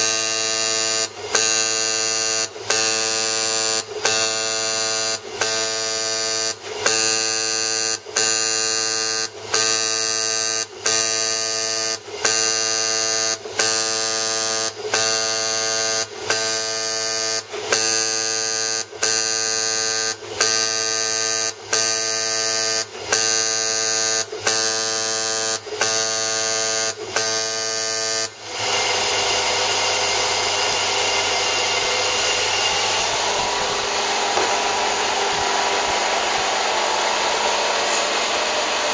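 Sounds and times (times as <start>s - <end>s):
dispenser head buzzing: 0.0s - 38.9s
machine hiss: 30.0s - 38.9s.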